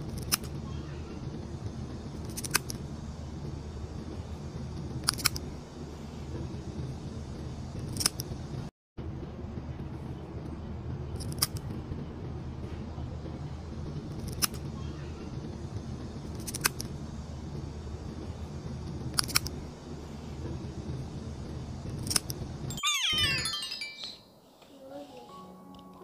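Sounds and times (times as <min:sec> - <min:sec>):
nail clipper snipping claws: 0:02.3 - 0:02.7, 0:16.4 - 0:16.8, 0:19.2 - 0:19.5.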